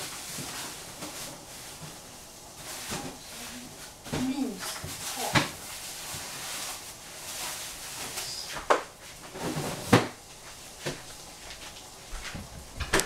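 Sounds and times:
faint steady hiss: 0.0 - 13.0
kitchen knocks and clunks: 8.6 - 10.2, 12.2 - 13.0.

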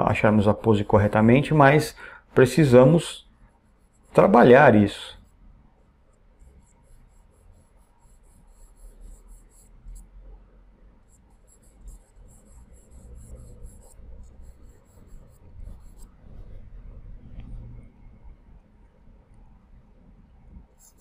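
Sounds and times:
pencil scratching on paper: 2.7 - 10.2, 10.9 - 16.9, 20.6 - 21.0.

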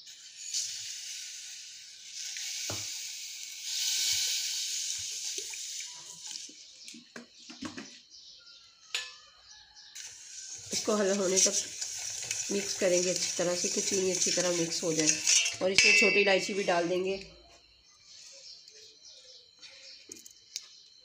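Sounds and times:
water pouring onto sugar in pot: 0.0 - 6.6, 10.0 - 15.7.

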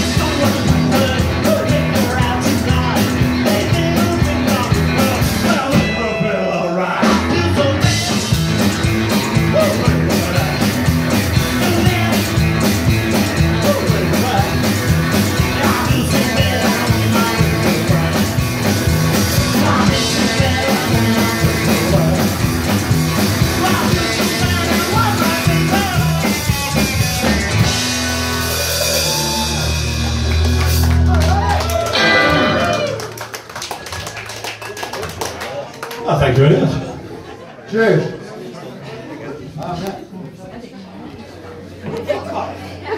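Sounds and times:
fast drum beat: 0.0 - 5.9, 7.0 - 31.5
rockabilly band playing: 0.0 - 37.0.

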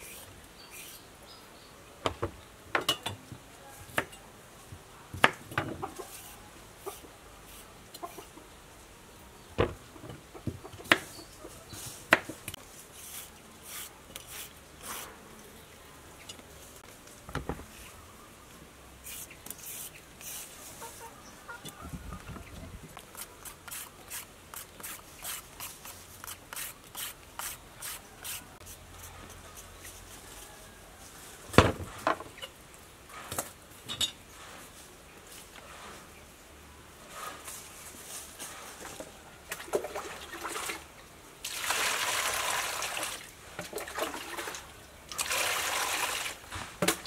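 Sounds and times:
knife scraping cucumber skin: 13.0 - 15.2, 19.0 - 20.6, 23.0 - 29.2.

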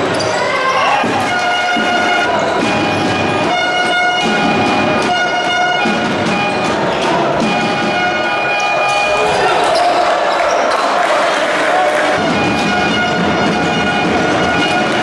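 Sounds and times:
crowd noise: 0.0 - 15.0
arena horn blasts: 1.2 - 6.7.

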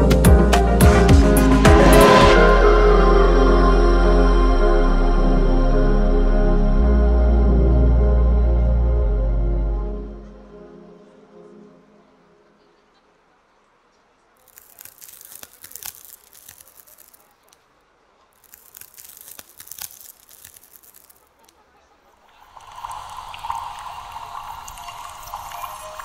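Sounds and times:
drone with low rumble: 0.0 - 10.5
crackling dripping noise: 14.4 - 26.0.

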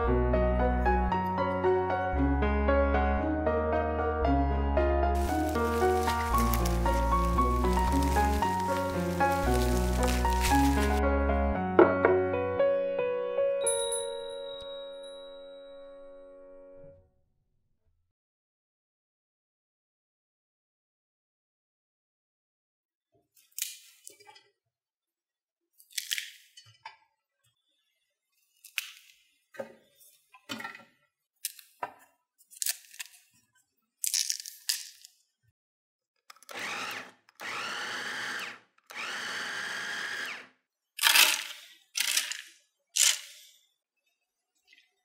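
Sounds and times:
vegetable snapping: 5.2 - 11.0
food processor motor: 36.3 - 42.3.

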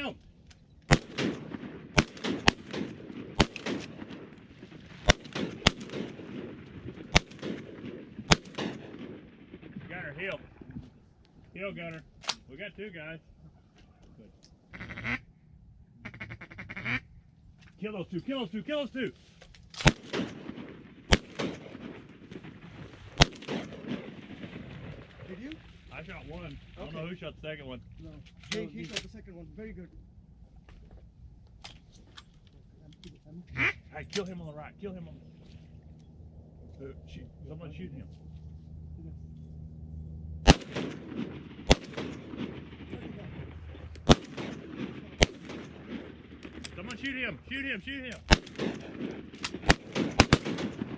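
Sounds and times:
shotguns firing: 0.9 - 10.4, 19.8 - 25.4, 40.4 - 47.4, 48.0 - 50.9.

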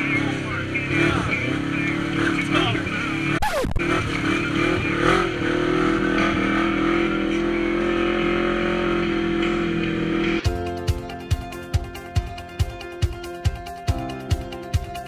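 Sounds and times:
utility vehicle engine running: 0.0 - 15.0
music with a beat: 6.0 - 15.0.

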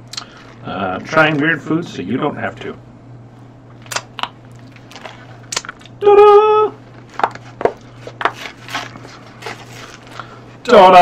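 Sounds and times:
paper and cardboard crinkling: 6.9 - 10.4.

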